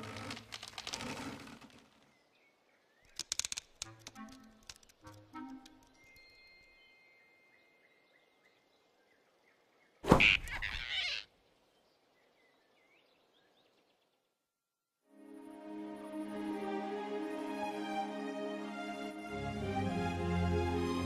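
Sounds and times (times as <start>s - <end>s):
soft music: 3.8s - 8.3s, 15.1s - 21.0s.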